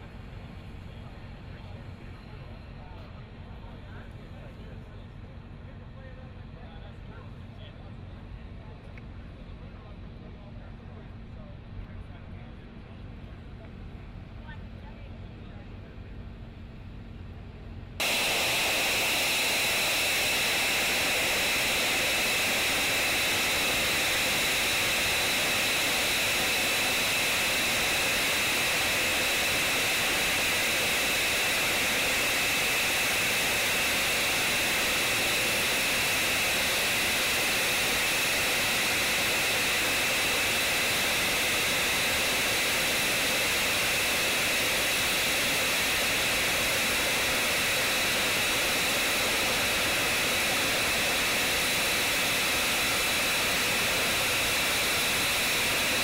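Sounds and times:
high-pitched jet whine: 18.0 - 56.0
jet engine rush: 18.0 - 56.0.

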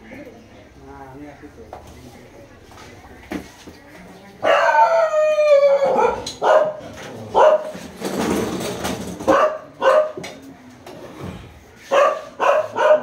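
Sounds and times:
dog barking: 4.4 - 5.1, 5.8 - 7.8, 9.3 - 10.2, 11.9 - 13.0
dog howling: 4.4 - 6.3.

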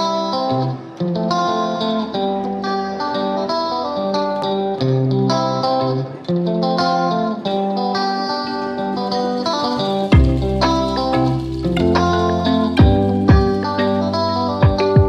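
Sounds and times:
plucked string instrumental music: 0.0 - 15.0.

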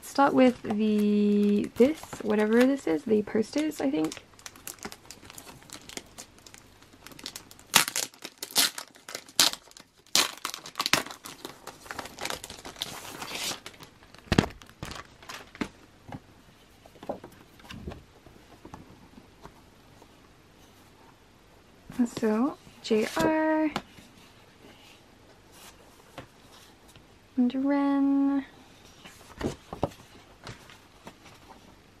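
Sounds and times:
plastic and paper crinkling: 0.2 - 15.9.

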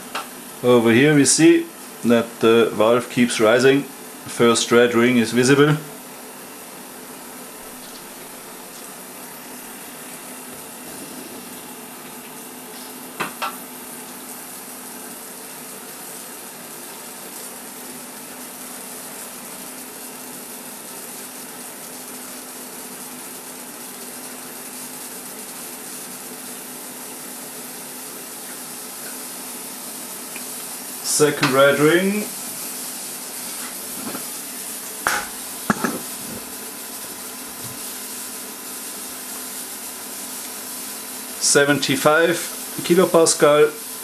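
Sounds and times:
pressure pot hissing: 9.4 - 13.5, 28.2 - 44.0.

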